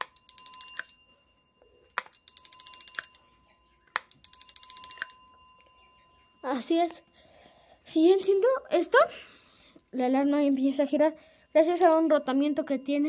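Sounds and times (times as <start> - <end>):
fire alarm bell ringing: 0.0 - 7.8, 10.9 - 13.0.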